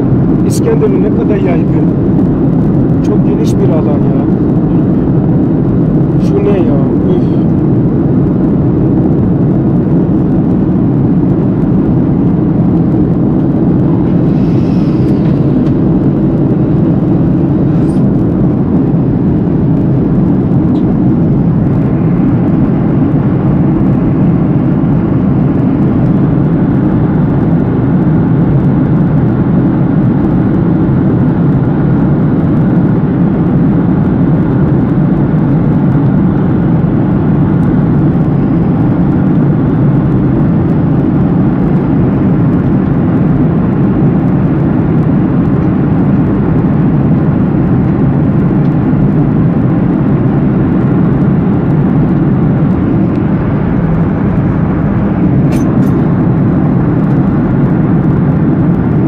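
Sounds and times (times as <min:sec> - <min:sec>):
airliner cabin engine noise: 0:00.0 - 0:59.0.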